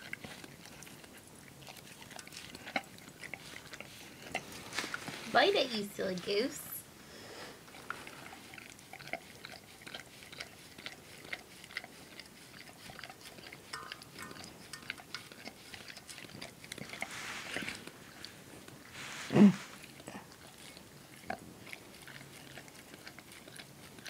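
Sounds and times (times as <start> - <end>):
dog licking in metal bowl: 0.0 - 5.1, 7.6 - 18.8, 19.8 - 24.0
dog sniffing: 14.4 - 20.8.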